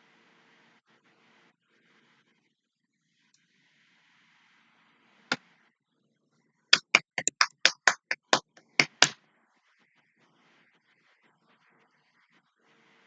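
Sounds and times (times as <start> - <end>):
sharp clicks or taps: 6.8 - 9.2.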